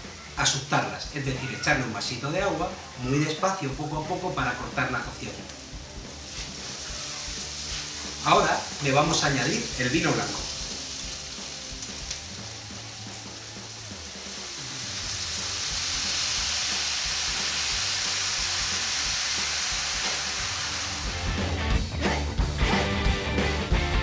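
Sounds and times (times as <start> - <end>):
onion and garlic sizzling in oil: 0.0 - 22.8
wine pouring into pan: 4.3 - 21.7.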